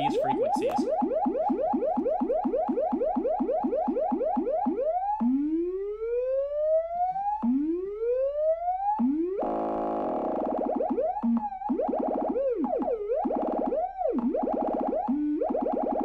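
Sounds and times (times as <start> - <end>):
steady buzzy tone: 9.4 - 16.0.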